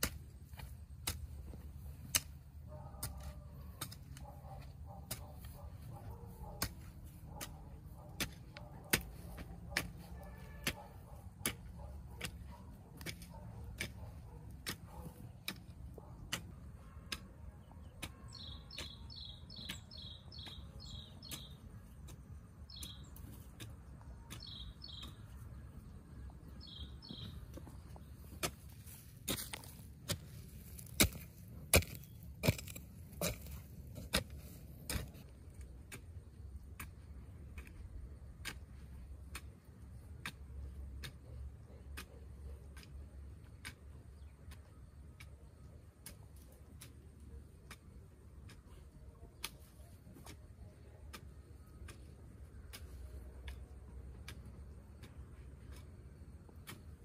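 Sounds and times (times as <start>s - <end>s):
small bird chirping: 17.6s - 31.1s.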